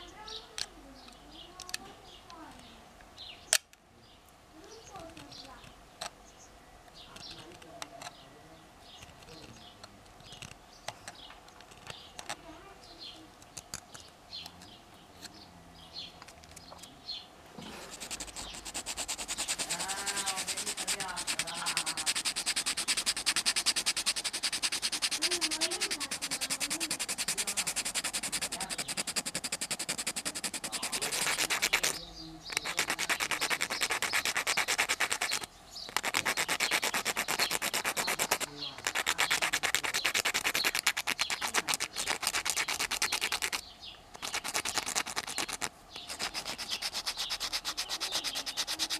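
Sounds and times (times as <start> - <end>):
sandpaper rasping on wood: 17.6 - 43.6, 44.2 - 48.9.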